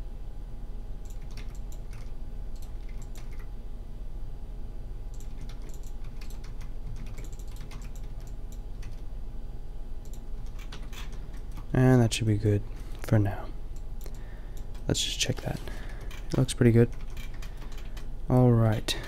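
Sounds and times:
steady low hum: 0.0 - 19.0
keyboard keystrokes: 1.1 - 3.5, 5.1 - 9.0, 10.0 - 11.7, 14.0 - 18.1.

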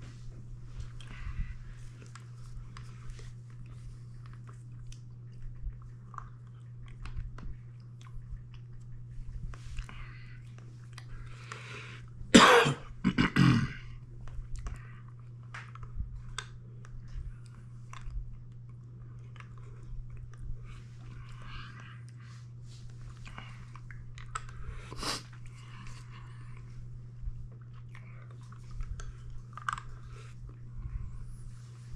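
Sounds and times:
low hum: 0.0 - 31.9
wet mouth sucking noises: 24.9 - 25.4.

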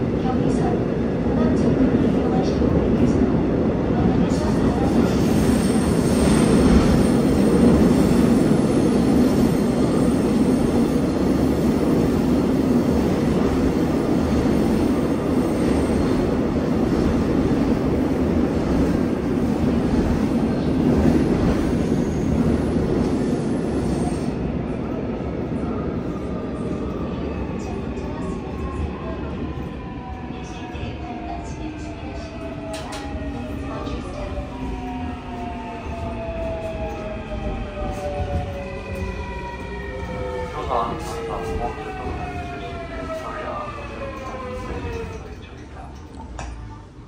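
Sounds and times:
train wheels rumbling on rail: 0.0 - 47.0.

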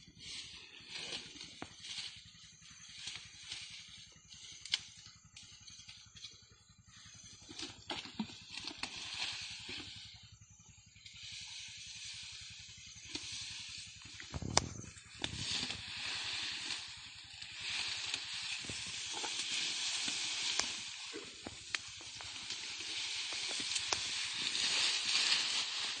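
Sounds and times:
steady hiss: 11.3 - 26.0
brush rustling: 11.4 - 26.0
twigs snapping: 18.6 - 26.0.

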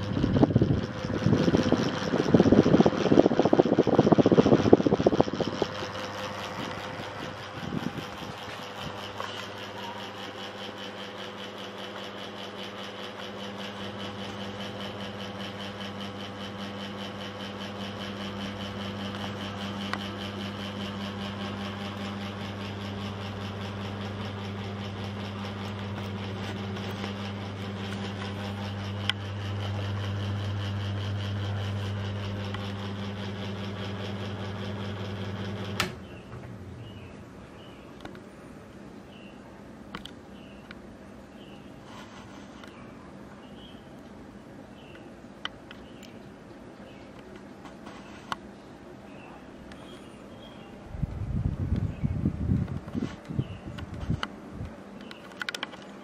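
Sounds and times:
ceiling fan motor hum: 0.0 - 56.0
fan switch click: 35.7 - 36.6.

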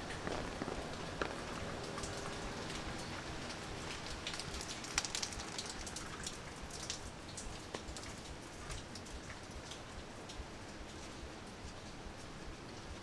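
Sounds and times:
rain on paving and foliage: 0.0 - 13.0
raindrops tapping: 0.0 - 13.0.

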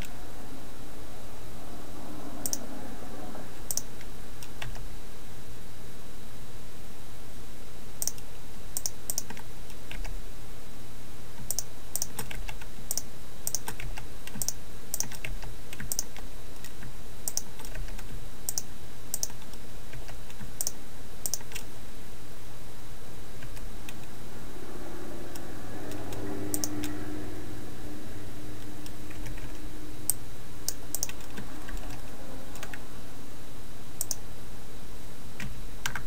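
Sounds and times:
steady low hum: 0.0 - 36.0
computer keys clicking: 3.7 - 4.8, 8.0 - 8.2, 8.8 - 10.1, 11.5 - 21.7, 25.3 - 27.0, 28.8 - 32.8, 34.0 - 34.2, 35.4 - 36.0
mouse buttons clicking: 3.7 - 4.8, 17.3 - 17.5, 18.5 - 21.6, 26.6 - 26.9, 30.7 - 32.8, 34.0 - 34.2.

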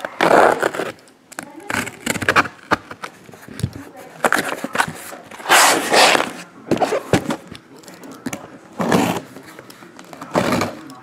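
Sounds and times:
cardboard box scraping on table: 4.2 - 7.3, 8.8 - 9.2.

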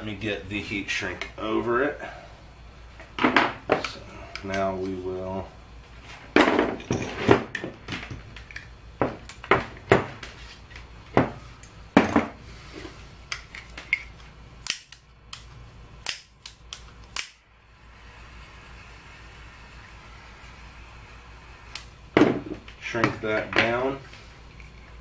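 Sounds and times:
faint torch flame hiss: 10.2 - 25.0
butane torch clicking: 13.2 - 23.5.

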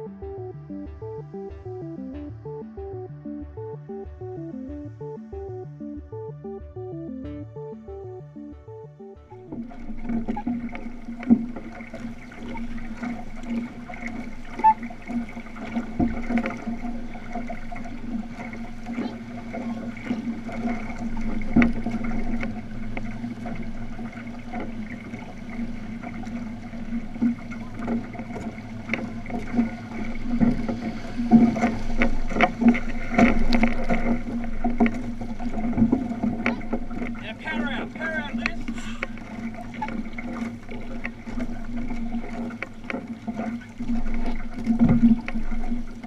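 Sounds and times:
paddles splashing: 7.3 - 46.0
water washing along hull: 9.3 - 46.0.

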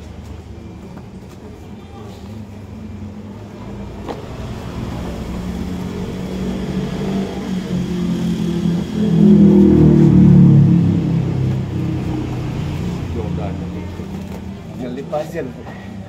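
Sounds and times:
motor vehicle engine running: 3.6 - 16.0.

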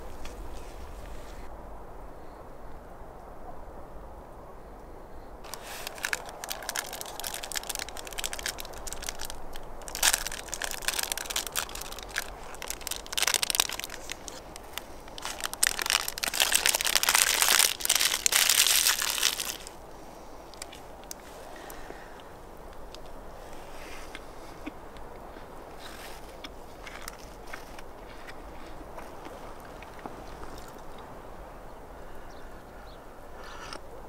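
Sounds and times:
plastic wrapper crinkling: 5.4 - 19.8, 20.5 - 21.3, 25.8 - 30.9.

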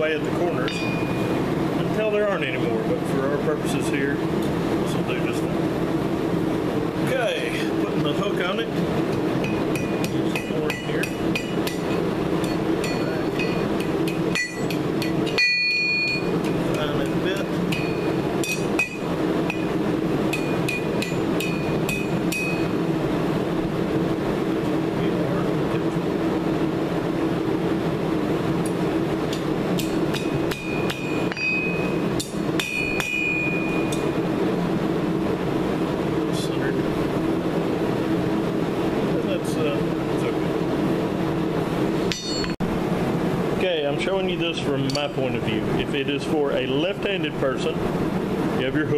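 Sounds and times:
hammer striking steel on anvil: 0.6 - 1.3, 9.4 - 22.7, 29.3 - 34.1, 42.1 - 42.6.

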